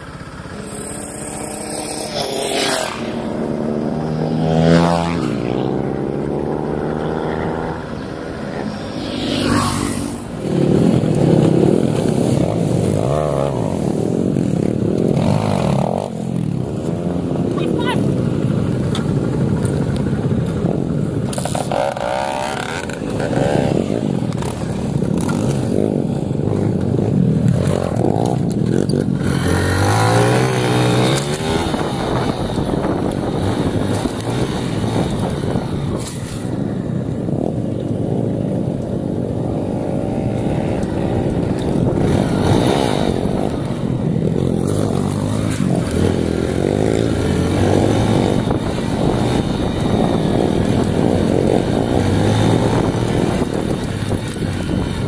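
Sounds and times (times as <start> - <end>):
dirt bike engine revving: 0.3 - 17.8, 21.3 - 36.6, 39.4 - 55.0.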